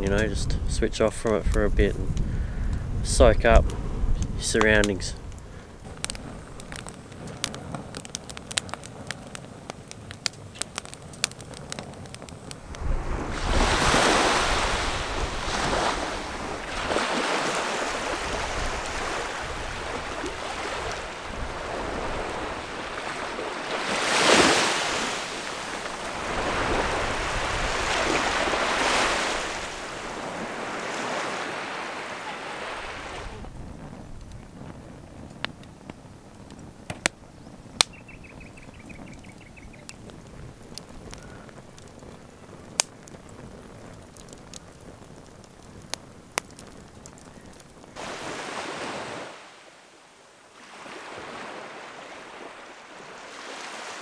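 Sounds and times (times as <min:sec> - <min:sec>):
wood fire crackling: 0:00.0 - 0:54.0
small waves washing up beach: 0:11.6 - 0:33.6, 0:48.0 - 0:54.0.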